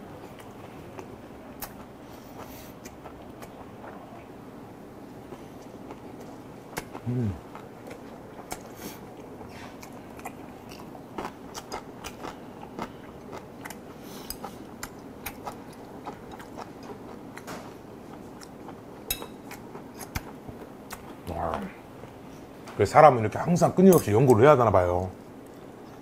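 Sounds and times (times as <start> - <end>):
person chewing wetly: 0.2 - 4.3, 5.2 - 21.2.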